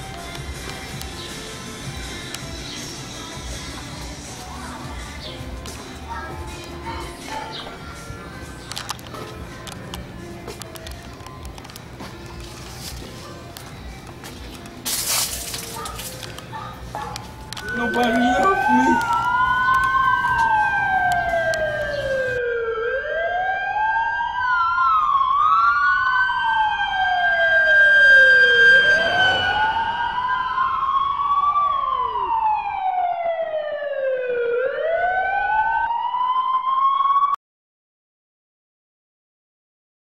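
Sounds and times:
police siren wailing: 15.5 - 37.4
second siren tone: 17.5 - 23.3, 27.2 - 32.9, 34.6 - 37.4.

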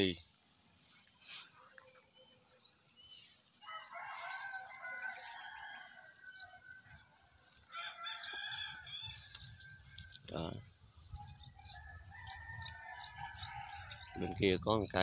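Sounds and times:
small birds chirping: 0.0 - 15.0
rooster crowing: 3.6 - 9.9, 11.3 - 14.4.

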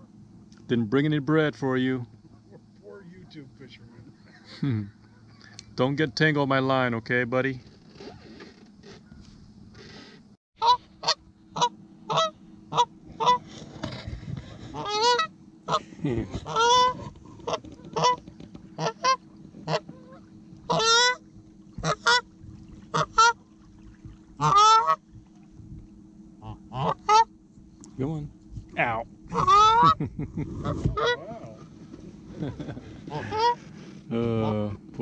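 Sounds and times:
faint low hum: 0.0 - 35.0
goose honking: 10.6 - 14.0, 14.6 - 22.3, 22.9 - 23.4, 24.4 - 25.0, 26.4 - 27.3, 28.8 - 30.0, 30.6 - 31.8, 33.0 - 34.8.

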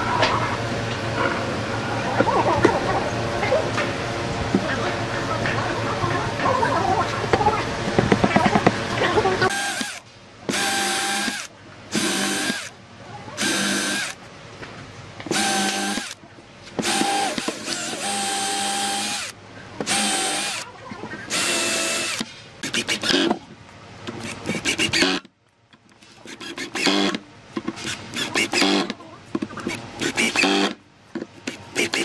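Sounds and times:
cordless drill whining: 9.5 - 12.7, 13.4 - 14.2, 15.3 - 16.2, 16.8 - 19.3, 19.9 - 20.6, 21.3 - 22.2.

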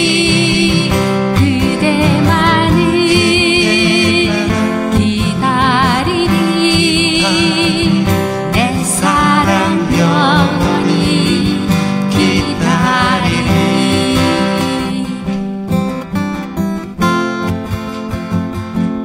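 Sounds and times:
person singing a slow ballad: 0.0 - 16.0
acoustic guitars playing: 0.0 - 19.0.

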